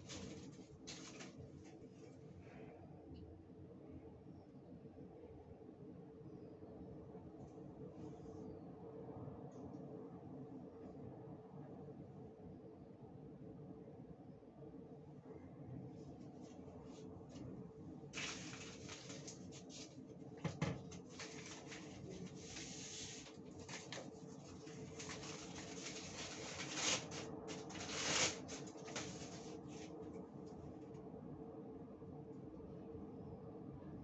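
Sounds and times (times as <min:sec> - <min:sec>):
tissue paper rustling: 0:00.0 - 0:02.2, 0:18.1 - 0:20.1, 0:20.8 - 0:30.0
faint steady hum: 0:00.0 - 0:34.0.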